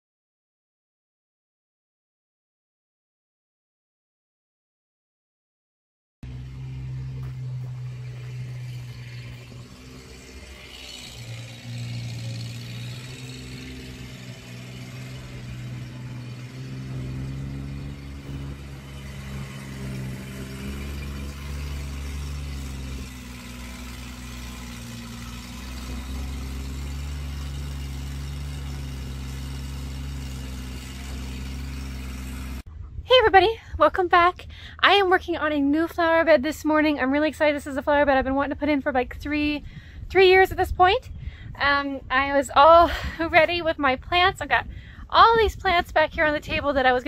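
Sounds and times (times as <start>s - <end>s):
loader engine running: 6.2s - 47.0s.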